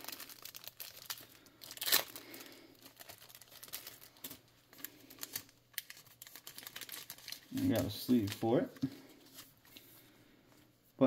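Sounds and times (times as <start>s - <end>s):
plastic wrapper crinkling: 0.0s - 9.8s.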